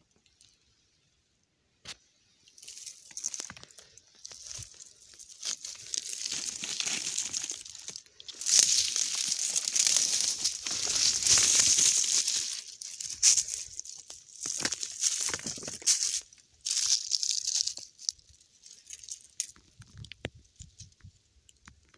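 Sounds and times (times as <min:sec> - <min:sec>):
footsteps crunching through dry leaves: 0:02.6 - 0:18.2.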